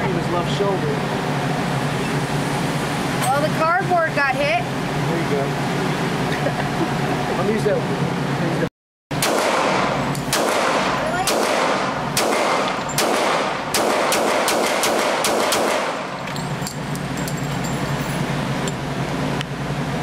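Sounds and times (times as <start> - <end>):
handgun shots with echo: 9.2 - 16.1.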